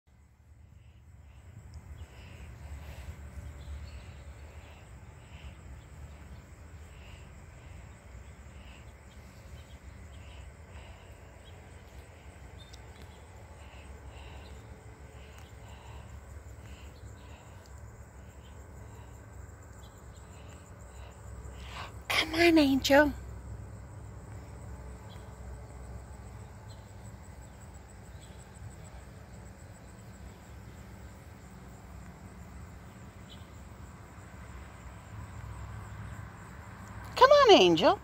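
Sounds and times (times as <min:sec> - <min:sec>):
steady low rumble: 0:00.1 - 0:22.2
insects chirping: 0:00.1 - 0:38.0.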